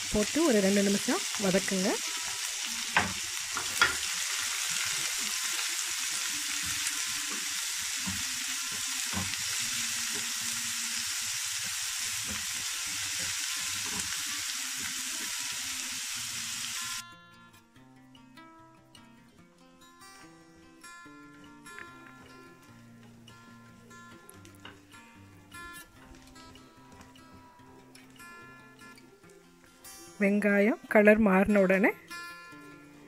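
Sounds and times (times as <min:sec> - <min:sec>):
onions sizzling in oil: 0:00.0 - 0:17.0
soft acoustic guitar music: 0:17.0 - 0:33.0.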